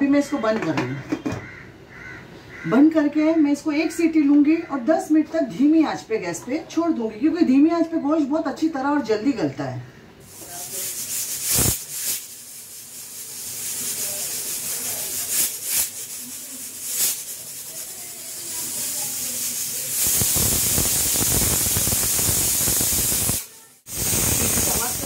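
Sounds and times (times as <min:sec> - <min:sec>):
pressure cooker hissing: 0:10.2 - 0:25.0
pressure cooker whistle venting steam: 0:20.0 - 0:25.0.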